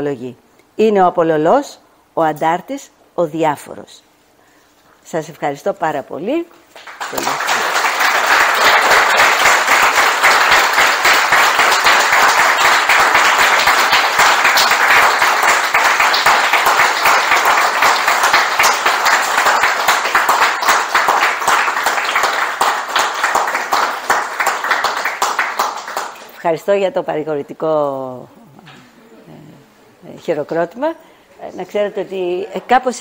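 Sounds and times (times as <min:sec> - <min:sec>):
audience applauding: 0:06.8 - 0:26.4.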